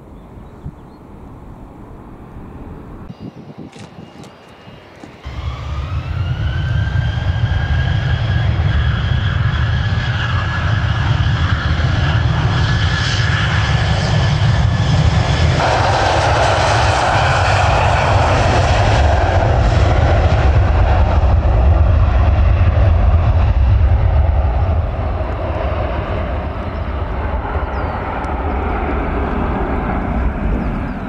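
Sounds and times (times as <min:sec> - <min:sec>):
jet engine roar: 0:01.1 - 0:31.0
jet engines whining: 0:01.1 - 0:31.0
deep rumble: 0:05.2 - 0:31.0.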